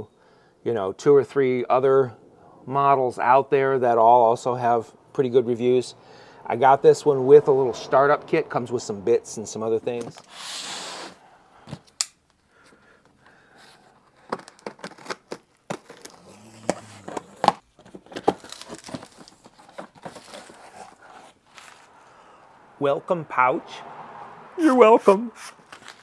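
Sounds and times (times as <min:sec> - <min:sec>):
sharp clicks and rustles: 0:11.6 - 0:21.9
packing tape tearing: 0:14.2 - 0:21.8, 0:25.4 - 0:26.0
cardboard flaps scraping: 0:14.8 - 0:21.9.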